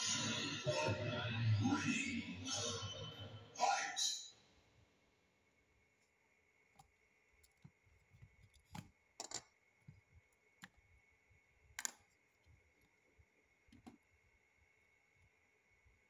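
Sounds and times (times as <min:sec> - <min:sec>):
plastic bricks clicking: 0:11.8 - 0:12.1.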